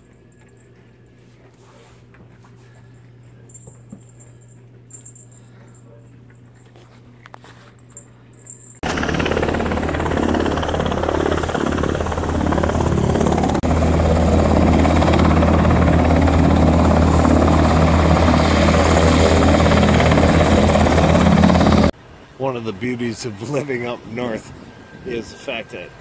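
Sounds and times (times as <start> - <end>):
helicopter rotor and engine: 8.8 - 22.0, 23.0 - 26.0.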